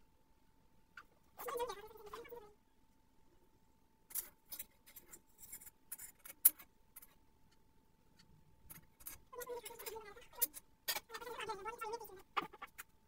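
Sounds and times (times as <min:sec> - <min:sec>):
spoon scraping in a jar: 0:04.1 - 0:07.2, 0:08.7 - 0:11.5.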